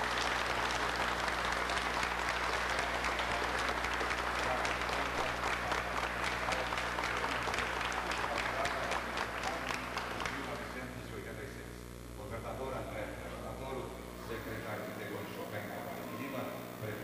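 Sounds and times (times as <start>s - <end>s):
crowd applauding: 0.0s - 11.0s.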